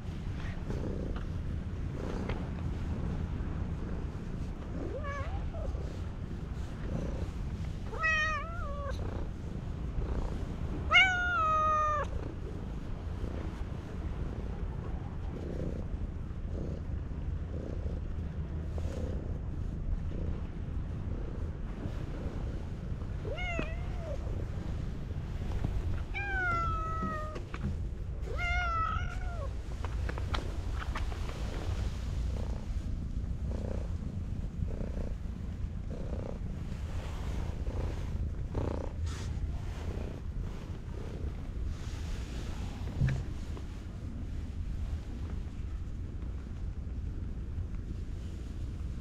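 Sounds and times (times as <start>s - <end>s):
low rumble: 0.0s - 49.0s
cat meowing: 7.9s - 8.9s, 10.9s - 12.1s, 23.3s - 24.2s, 26.1s - 27.4s, 28.3s - 29.5s.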